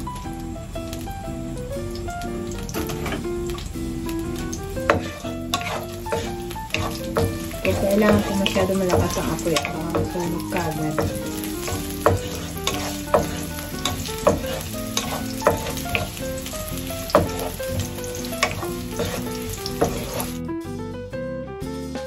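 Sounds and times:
garlic sizzling in oil: 0.0 - 20.4
wooden spatula stirring in pan: 4.4 - 20.4.

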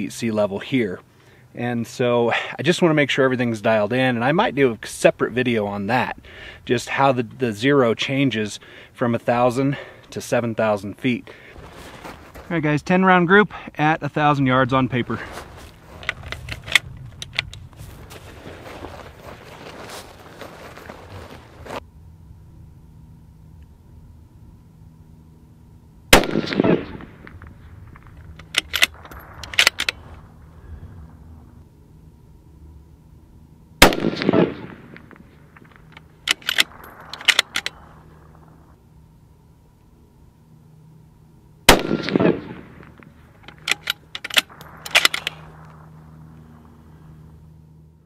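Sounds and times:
rifle shot: 26.1 - 30.4, 33.8 - 38.5, 41.7 - 46.0
rifle bolt metallic clicks: 26.2 - 30.0, 35.7 - 37.8, 41.7 - 45.8.

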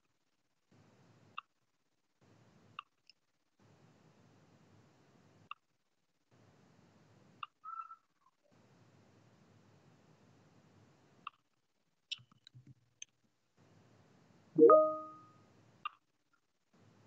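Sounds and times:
faint microphone hiss: 13.3 - 15.9.

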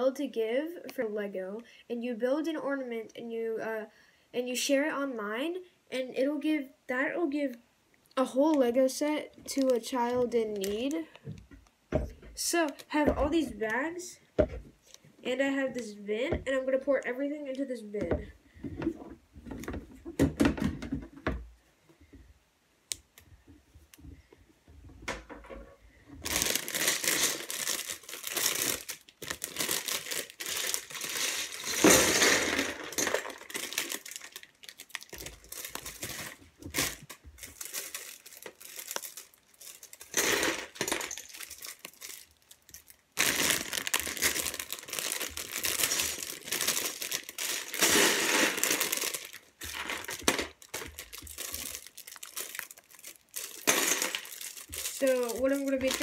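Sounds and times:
plastic bags crinkling: 9.5 - 11.4, 26.2 - 56.0
plastic bricks clattering into bin: 25.1 - 56.0.

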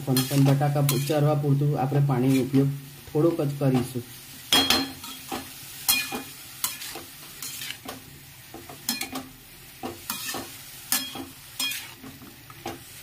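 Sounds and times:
vegetables sizzling in oil: 0.0 - 13.0
spatula scraping metal pan: 0.1 - 1.3, 4.8 - 8.0, 10.0 - 12.2.

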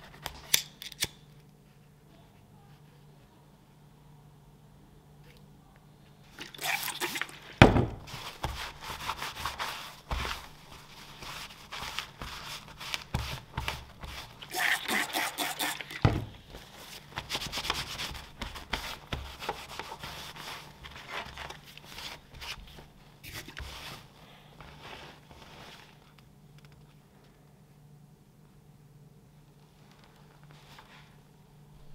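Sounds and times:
cloth rubbing on leather: 8.1 - 15.8.

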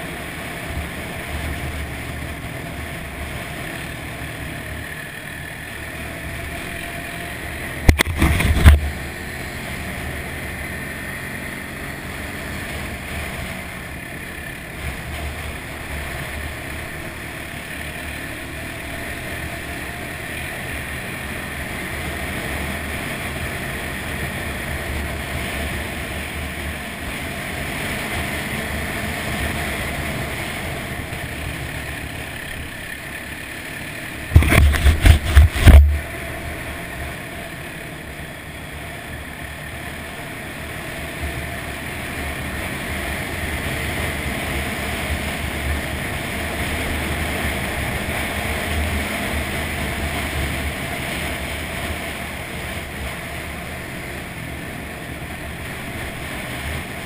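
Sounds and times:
atv engine running: 0.0 - 57.0
wind and tyre noise: 0.0 - 57.0
loud knocks and rumble: 34.3 - 36.0.

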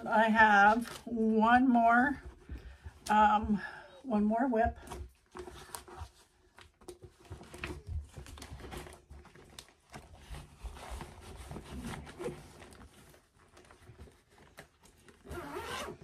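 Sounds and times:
canvas rustling and crinkling: 4.5 - 16.0.

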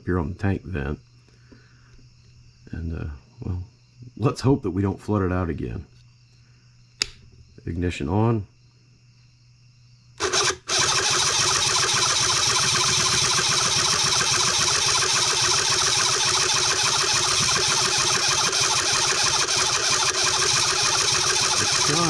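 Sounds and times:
electric starter cranking engine: 10.2 - 22.0.

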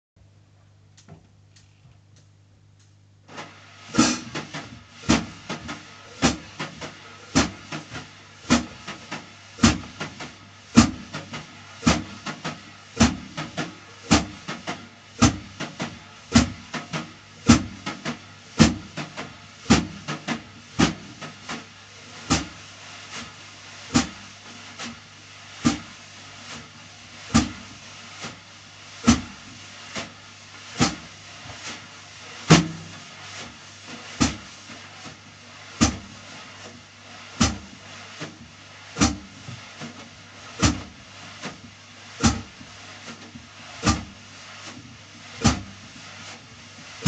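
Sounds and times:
wire brushes swishing on snare drum: 2.9 - 47.0
brush taps on snare drum: 3.3 - 24.2, 27.3 - 35.2, 35.8 - 36.8, 37.4 - 44.8, 45.4 - 46.0.

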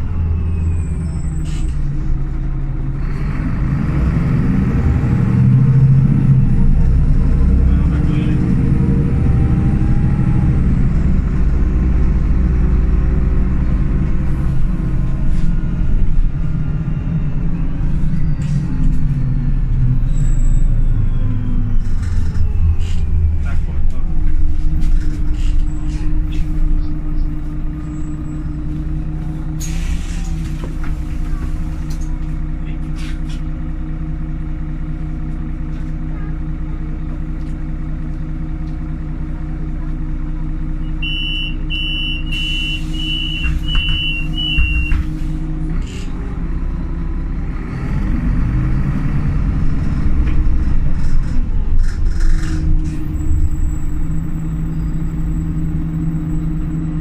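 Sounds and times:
bus engine running: 0.0 - 57.0
short high beeps: 41.0 - 45.0.

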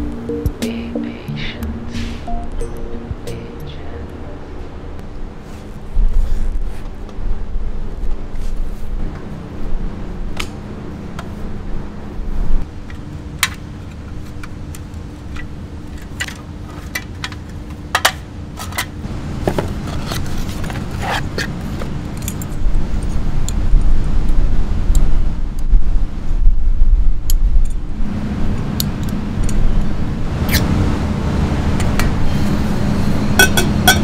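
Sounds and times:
wind buffeting microphone: 21.6 - 34.0.

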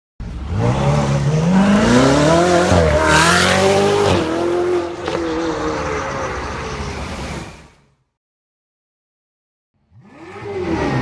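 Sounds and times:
sports car engine accelerating: 0.2 - 5.9, 9.8 - 11.0.

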